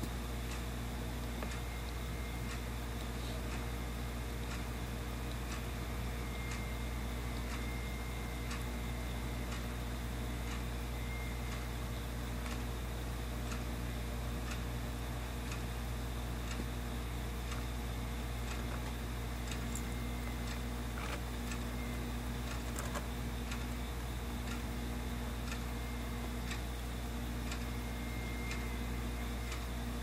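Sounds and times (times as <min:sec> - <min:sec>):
irregular clicks: 0:22.4 - 0:23.7.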